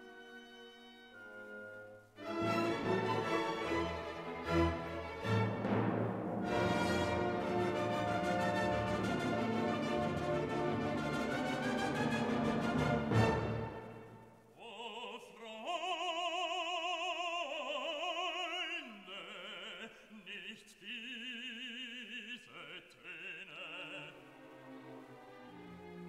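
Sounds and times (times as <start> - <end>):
orchestral chord: 1.2 - 14.1
opera voice singing with vibrato: 14.6 - 24.4.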